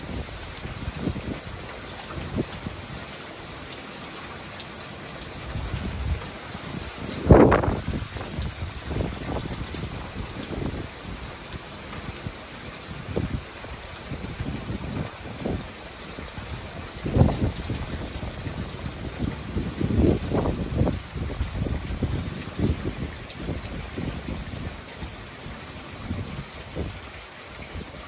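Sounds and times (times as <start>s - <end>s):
steady rain falling: 0.0s - 28.0s
wind buffeting microphone: 5.4s - 11.3s, 12.9s - 28.0s.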